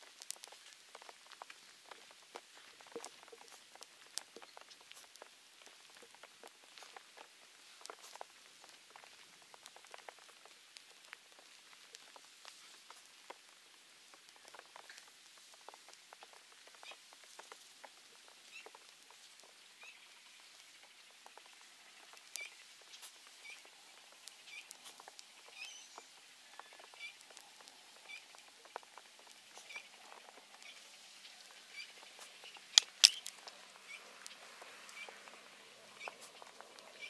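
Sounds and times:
campfire crackling: 0.0 - 37.0
faint high chirp: 22.4 - 22.6, 25.4 - 27.2, 34.9 - 35.2.

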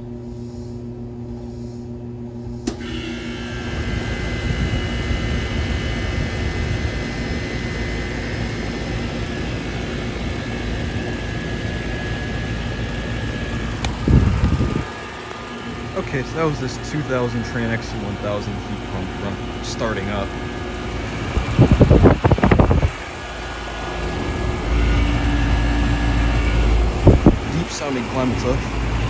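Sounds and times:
fan air rush with high whine: 0.0 - 29.0
low compressor hum: 0.0 - 29.0
low rumble: 12.5 - 19.6.

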